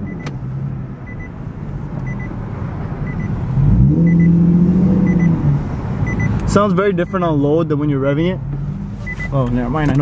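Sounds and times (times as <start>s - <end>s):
car engine revving: 0.0s - 10.0s
double-beep warning chime: 4.0s - 4.3s, 6.0s - 6.4s, 9.1s - 9.4s.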